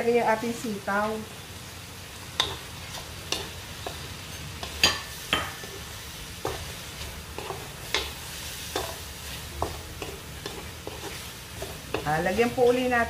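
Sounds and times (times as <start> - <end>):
vegetables sizzling in wok: 0.0 - 13.0
spatula scraping metal wok: 2.4 - 12.9.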